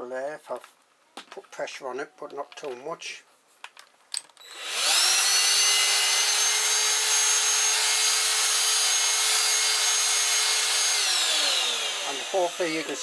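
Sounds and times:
vacuum cleaner motor whine: 0:04.4 - 0:13.0.

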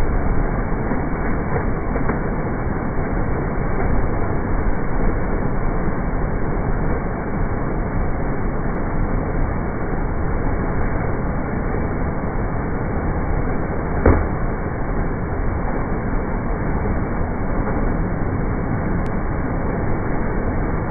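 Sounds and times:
brief knock: 0:14.0 - 0:14.3.

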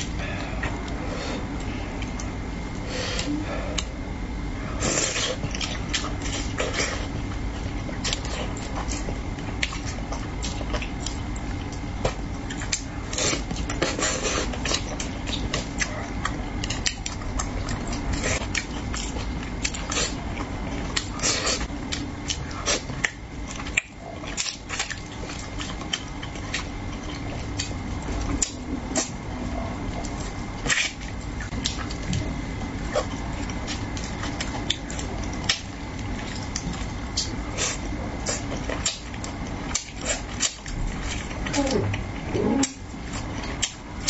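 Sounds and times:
chewing with wet mouth clicks: 0:00.0 - 0:02.4, 0:05.1 - 0:44.0.

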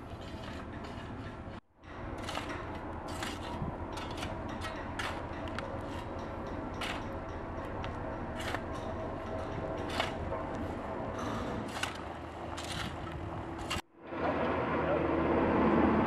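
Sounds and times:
shovel scraping gravelly dirt: 0:00.0 - 0:06.1, 0:06.8 - 0:07.0, 0:08.3 - 0:13.9
steady low hum: 0:00.0 - 0:16.0.

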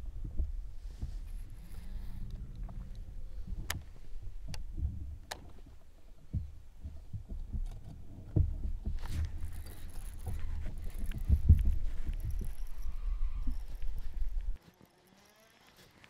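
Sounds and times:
low rumble: 0:00.0 - 0:09.5
gear thumping on boat deck: 0:03.4 - 0:14.6.

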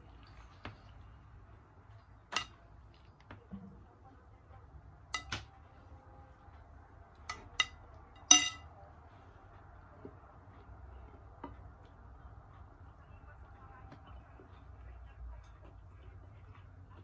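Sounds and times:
metal spoon clinking on glass bowl: 0:07.3 - 0:08.7.

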